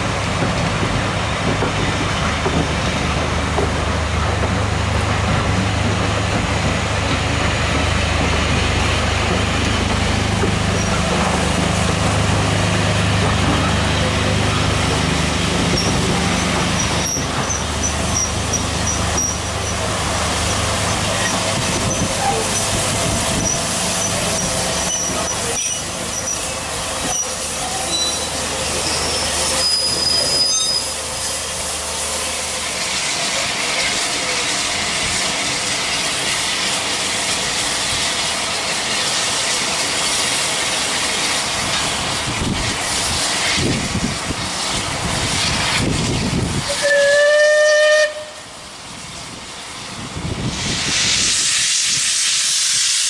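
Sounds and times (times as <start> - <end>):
steam hissing: 0.0 - 53.0
train rumbling past: 0.0 - 53.0
steam whistle blast: 46.7 - 48.5.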